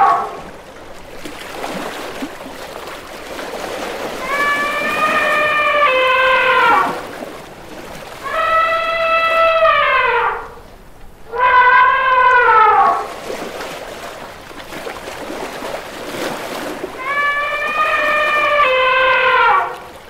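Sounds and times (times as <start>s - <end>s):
elephant trumpeting: 0.0s - 0.4s, 4.2s - 7.1s, 8.2s - 10.6s, 11.3s - 13.1s, 17.0s - 19.9s
water splashing and sloshing: 0.0s - 20.0s.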